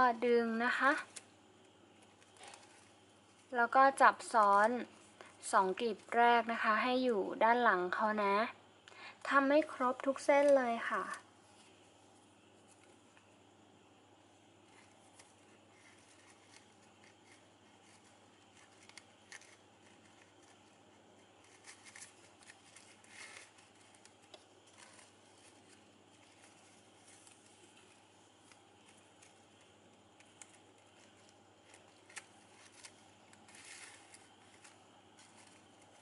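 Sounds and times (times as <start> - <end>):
ribbon rustling and crinkling: 1.9 - 6.2, 14.6 - 36.0.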